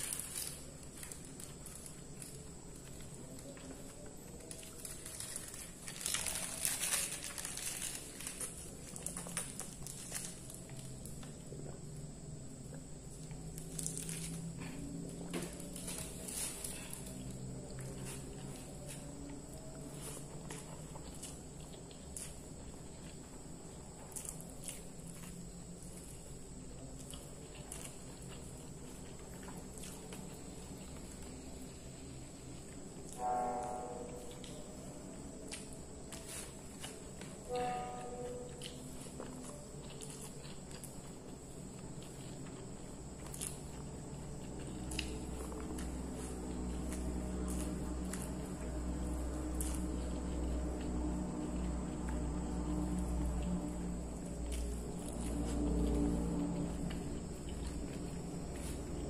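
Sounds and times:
chewing: 0:00.0 - 0:33.2, 0:34.0 - 0:59.0
faint high whine: 0:00.0 - 0:59.0
steady low hum: 0:00.0 - 0:59.0
plastic bag crinkling: 0:04.4 - 0:10.8.

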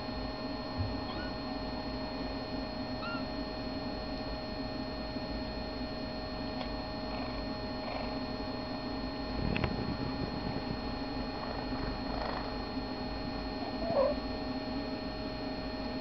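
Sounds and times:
electrical hum: 0:00.0 - 0:16.0
kittens squeaking: 0:01.0 - 0:01.5, 0:03.0 - 0:03.3, 0:13.6 - 0:14.2.

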